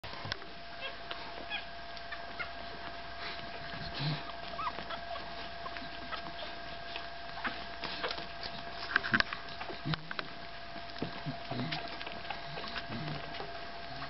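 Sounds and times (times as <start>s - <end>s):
puppies squeaking and whimpering: 0.8s - 14.0s.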